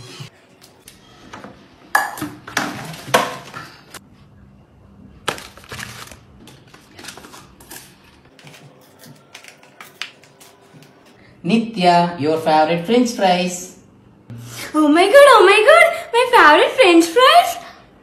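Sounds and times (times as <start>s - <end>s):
paper bag and cartons rustling: 5.2s - 10.7s.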